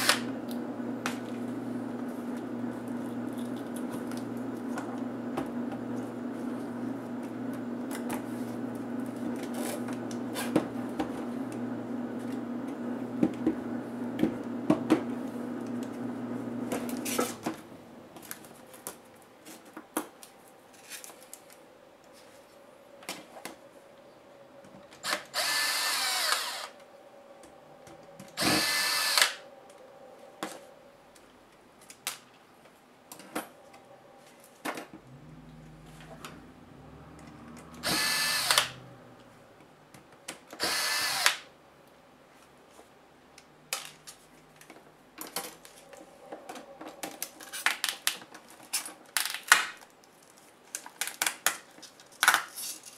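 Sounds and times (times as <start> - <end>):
electric screwdriver running: 0.0 - 0.6, 25.0 - 26.8, 28.4 - 29.4, 37.8 - 38.8, 40.6 - 41.4
steady low hum: 0.0 - 40.2.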